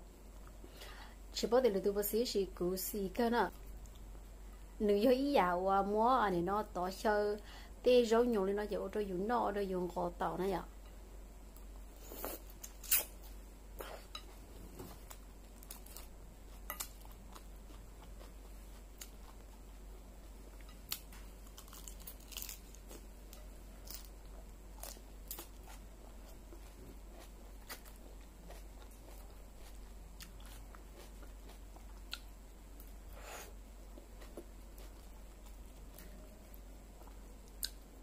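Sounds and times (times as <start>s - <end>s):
chewing salad crunching: 11.6s - 33.2s, 33.8s - 37.8s.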